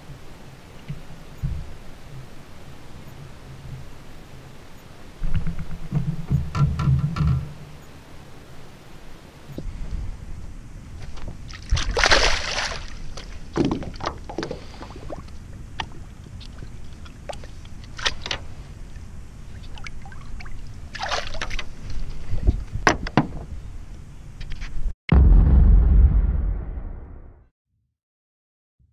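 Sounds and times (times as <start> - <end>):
water splashing: 11.1 - 21.9
deep boom logo sound: 25.1 - 27.5.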